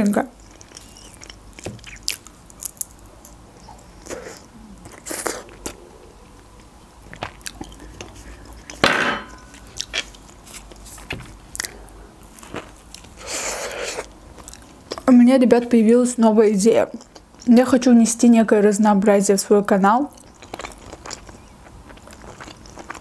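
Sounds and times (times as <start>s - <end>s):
wet chewing and mouth clicks: 0.1s - 5.8s, 6.4s - 8.8s, 9.6s - 10.9s, 11.5s - 15.1s, 20.1s - 23.0s.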